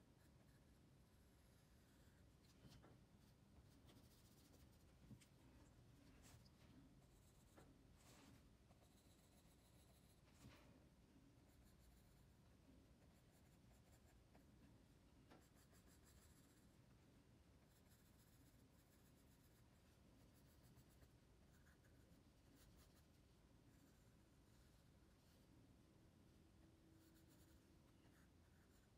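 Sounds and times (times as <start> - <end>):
pencil scratching on paper: 3.8 - 4.8, 8.7 - 10.4, 11.5 - 12.4, 13.0 - 14.4, 15.3 - 16.7, 17.6 - 24.8, 27.0 - 28.9.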